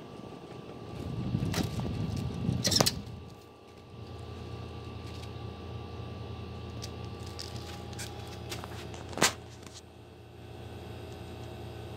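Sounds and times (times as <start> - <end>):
box fan humming: 0.0 - 11.9.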